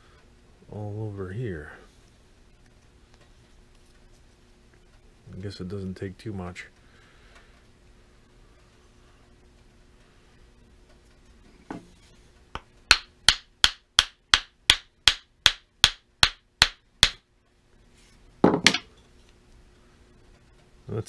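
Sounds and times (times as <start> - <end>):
wooden mallet tapping wood: 12.6 - 17.2.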